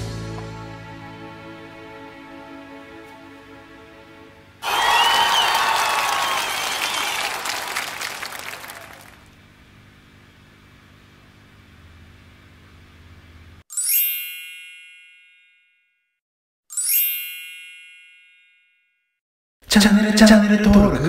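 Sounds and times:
music: 0:00.0 - 0:04.6
applause: 0:04.6 - 0:09.4
bright chime ringing: 0:13.7 - 0:15.8, 0:16.7 - 0:18.8.

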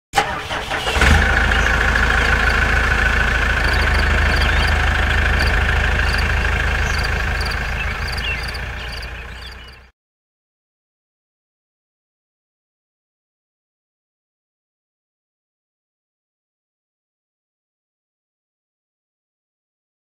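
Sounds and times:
tractor engine running: 0:00.2 - 0:09.9.

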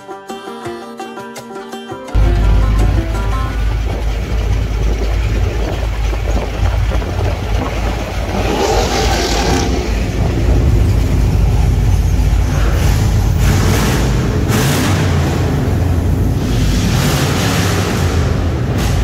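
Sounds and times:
car engine and road noise: 0:02.2 - 0:19.0.

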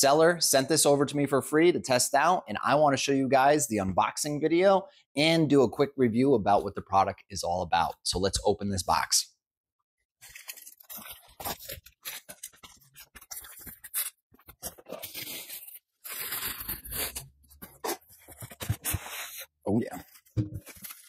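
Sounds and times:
packing tape tearing: 0:10.2 - 0:18.1
cardboard rustling and scraping: 0:10.2 - 0:21.0.

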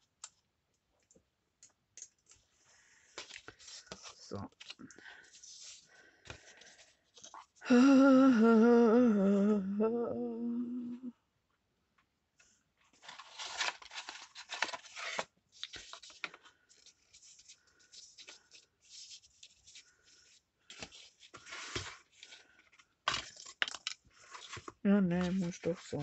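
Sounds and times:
paper rustling: 0:03.0 - 0:07.6, 0:12.9 - 0:26.0.

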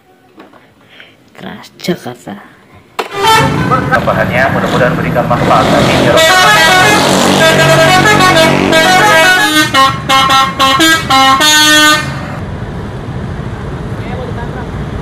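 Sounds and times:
bus musical horn melody: 0:03.0 - 0:12.4.

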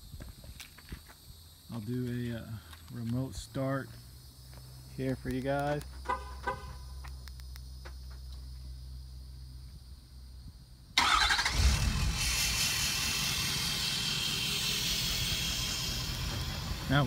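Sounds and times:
diesel engine starting and idling: 0:10.9 - 0:17.0.

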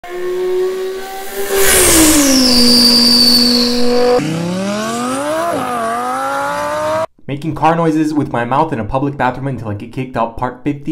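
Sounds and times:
high whistle gliding down: 0:00.0 - 0:06.2.

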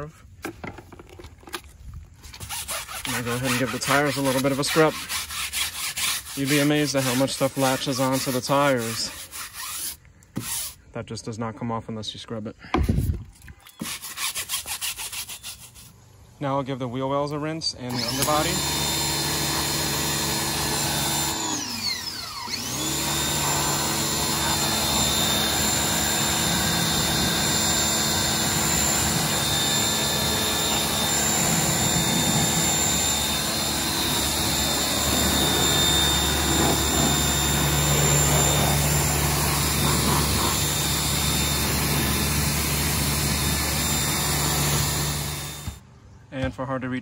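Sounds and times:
pressure washer motor whine: 0:17.9 - 0:45.8
spray hissing: 0:23.4 - 0:43.8.

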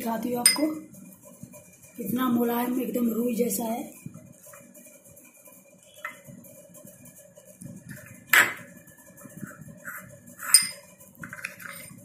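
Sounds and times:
metal spoon clinking against bowl: 0:10.5 - 0:10.8.

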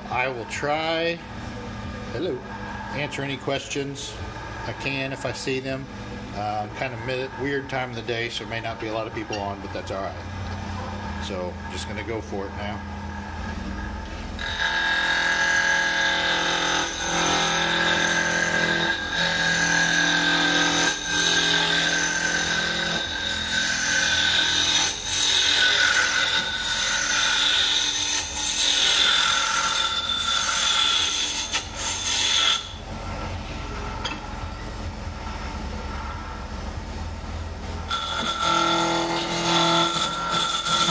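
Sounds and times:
lathe motor hum: 0:07.3 - 0:33.9, 0:37.8 - 0:40.9
lathe tool cutting wood: 0:14.4 - 0:32.8, 0:37.9 - 0:40.9.

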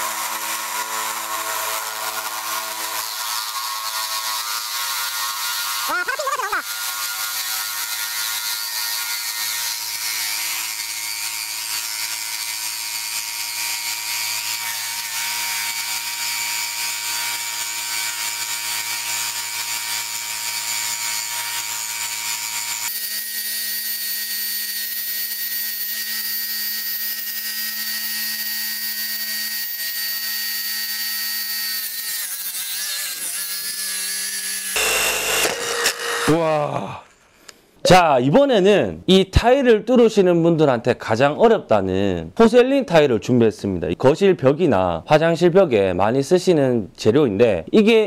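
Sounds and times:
diamond bit grinding stone: 0:13.6 - 0:36.3
motor whine: 0:34.7 - 0:36.4.

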